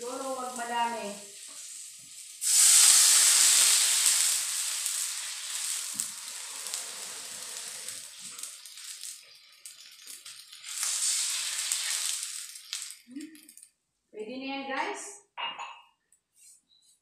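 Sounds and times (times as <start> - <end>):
water sizzling in a hot wok: 0.0 - 13.6.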